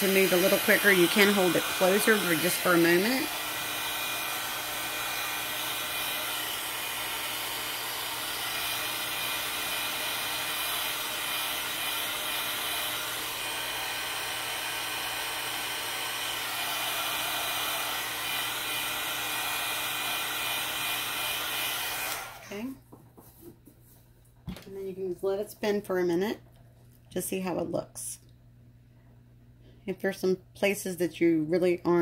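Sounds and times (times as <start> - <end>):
heat gun fan whirring: 0.0 - 22.7.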